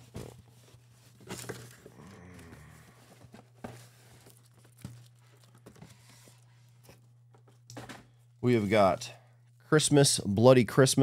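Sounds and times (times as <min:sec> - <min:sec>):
plastic envelope rustling: 0:00.0 - 0:07.6
steady low hum: 0:00.1 - 0:11.0.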